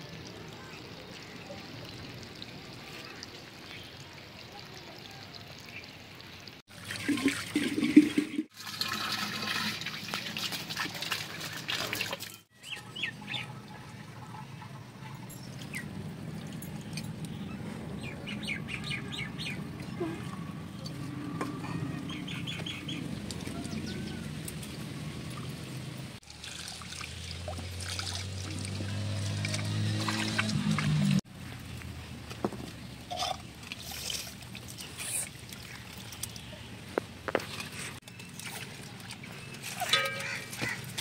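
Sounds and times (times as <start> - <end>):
outdoor background noise: 0.0 - 41.0
birds chirping: 21.6 - 24.4.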